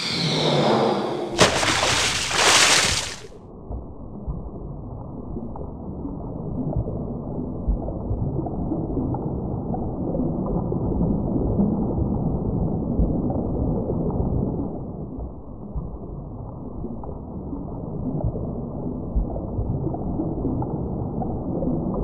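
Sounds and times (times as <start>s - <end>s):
small underwater pops: 1.4s - 3.3s
muffled underwater wash: 1.4s - 22.0s.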